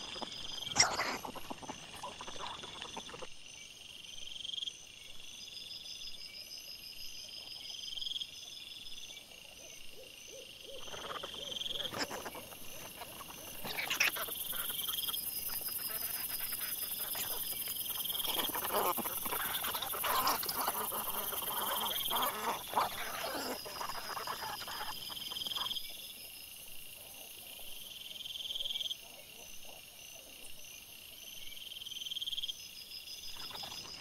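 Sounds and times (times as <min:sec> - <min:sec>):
wild boar grunting and snuffling: 0:00.0 - 0:03.3, 0:10.7 - 0:25.6.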